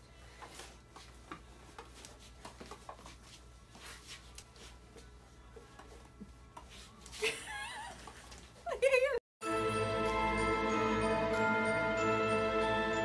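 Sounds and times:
faint taps and rustles: 0.4 - 7.2.

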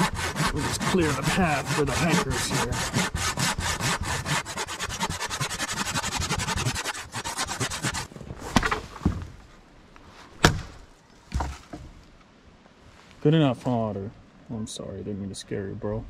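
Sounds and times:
hand saw cutting wood: 0.0 - 8.1
sharp loud knocks: 10.4 - 11.9.

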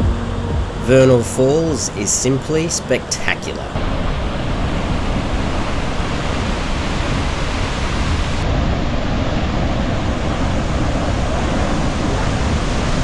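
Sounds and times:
waterfall roaring: 0.9 - 8.6.

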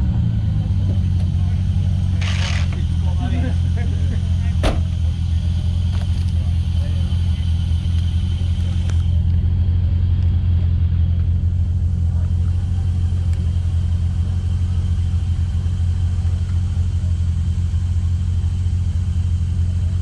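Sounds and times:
truck engine idling: 0.0 - 20.0.

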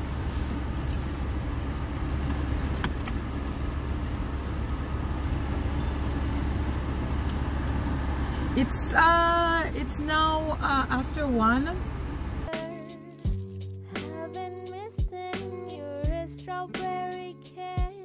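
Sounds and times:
air-conditioning fan blowing: 0.0 - 12.5
car engine rumble: 0.0 - 12.5.

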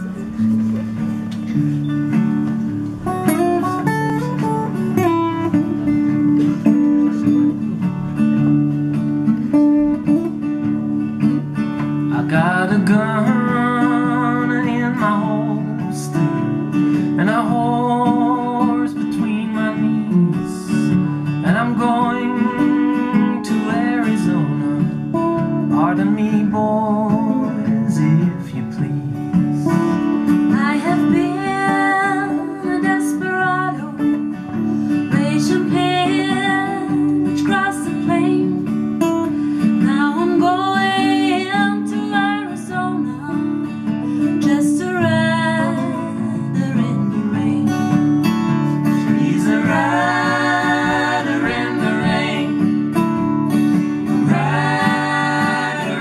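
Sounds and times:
acoustic guitars strumming: 0.0 - 56.0
man singing: 12.1 - 29.3, 49.0 - 52.7.

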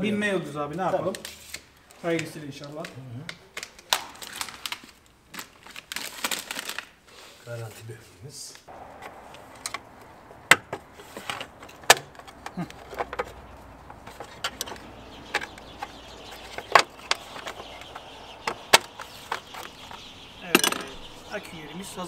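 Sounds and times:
rattling knocks: 8.8 - 21.4.

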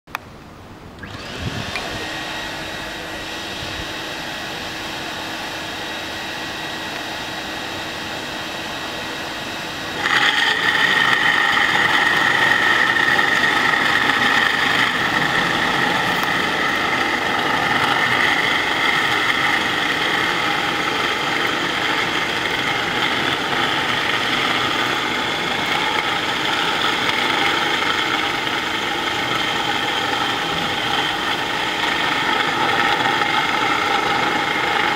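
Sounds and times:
floor grinder whining on concrete: 1.0 - 34.9
industrial dust extractor running: 1.0 - 34.9.

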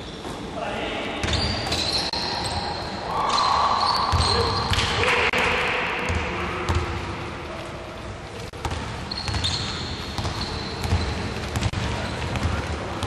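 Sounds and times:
shoe squeaking on floor: 1.2 - 4.7, 9.0 - 12.5.

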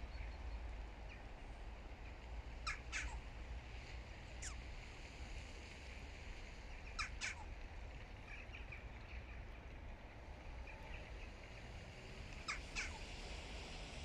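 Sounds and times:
faint bird chirps: 4.4 - 4.6.

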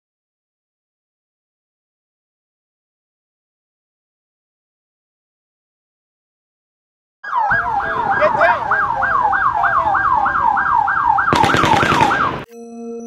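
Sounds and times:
siren yelping: 7.2 - 12.5
automatic gunfire: 11.3 - 12.4.

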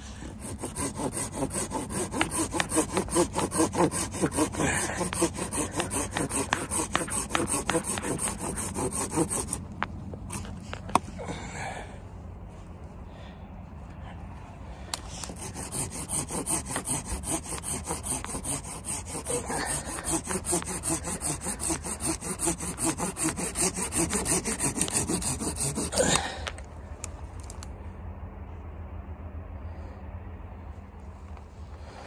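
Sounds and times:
pruning saw cutting branch: 0.0 - 11.0, 15.0 - 26.6.

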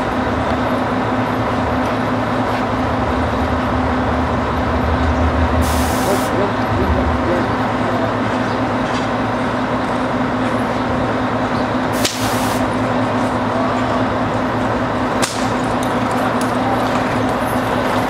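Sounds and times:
street traffic hum: 0.0 - 18.0
sharp cracks: 15.2 - 15.7.

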